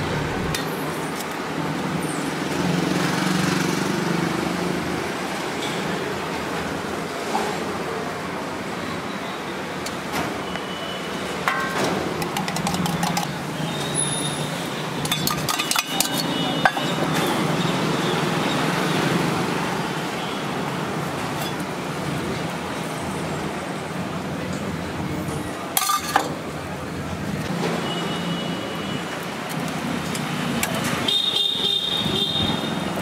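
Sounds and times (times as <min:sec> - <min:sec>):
street noise: 0:00.0 - 0:33.0
metal clinking on griddle: 0:15.0 - 0:17.1, 0:25.8 - 0:26.4.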